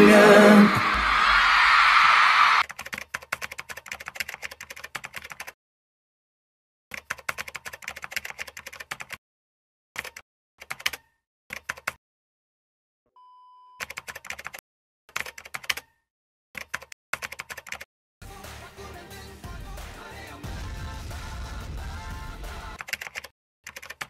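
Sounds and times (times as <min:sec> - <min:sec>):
computer keyboard typing: 0:02.6 - 0:05.6, 0:06.9 - 0:09.2, 0:10.0 - 0:12.0, 0:13.8 - 0:15.9, 0:16.6 - 0:17.9, 0:22.8 - 0:24.0.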